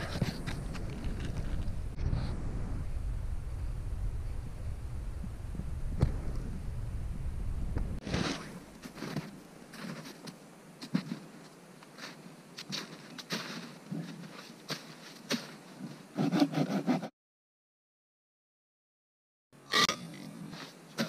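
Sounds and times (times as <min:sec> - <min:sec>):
boots crunching in snow: 0:08.1 - 0:16.0.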